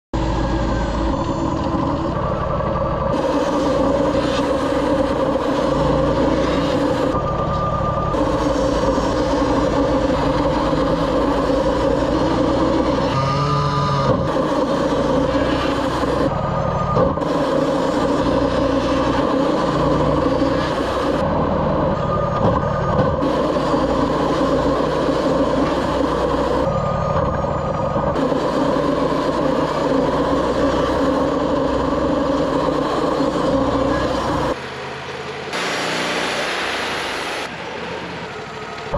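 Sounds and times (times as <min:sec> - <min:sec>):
band sawmill engine drone: 0:00.2 - 0:38.9
band blade sawing wood: 0:03.1 - 0:07.2, 0:08.2 - 0:16.3, 0:17.0 - 0:21.2.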